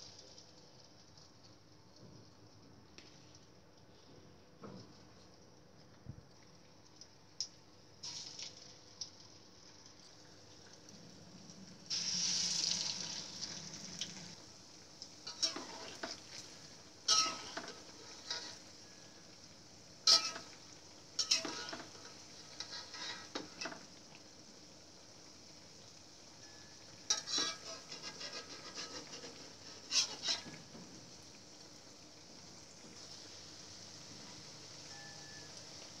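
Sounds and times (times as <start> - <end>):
dough sizzling in hot oil: 0.0 - 36.0
metal ladle scraping wok: 15.3 - 18.7, 20.1 - 20.6, 21.2 - 23.8, 27.1 - 30.8.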